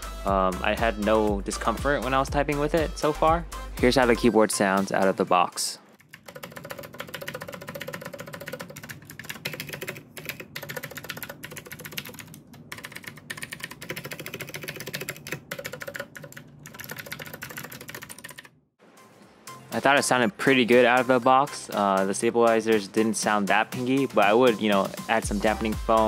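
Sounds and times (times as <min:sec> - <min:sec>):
mechanical keyboard typing: 0:06.0 - 0:18.5.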